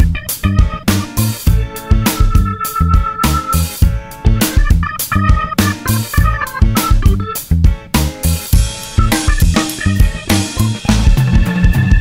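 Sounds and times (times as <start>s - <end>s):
rock music with drum beat: 0.0s - 12.0s.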